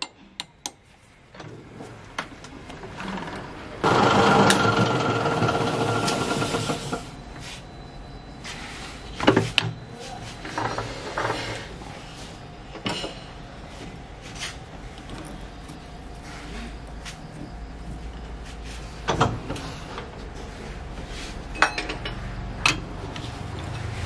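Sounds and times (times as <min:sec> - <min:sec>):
metal lathe running: 0:03.8 - 0:07.2
metal clanks and knocks: 0:21.6 - 0:22.9.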